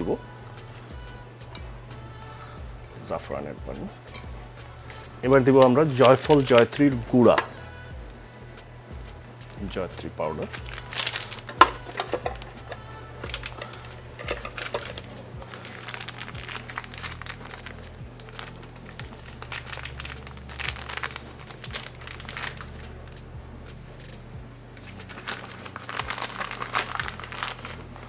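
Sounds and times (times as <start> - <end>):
low steady hum: 0.0 - 28.0
spoon scraping plastic cup: 10.5 - 20.0.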